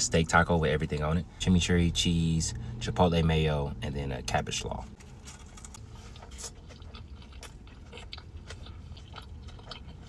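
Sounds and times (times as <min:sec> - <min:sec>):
man chewing and crunching: 0:04.7 - 0:10.0.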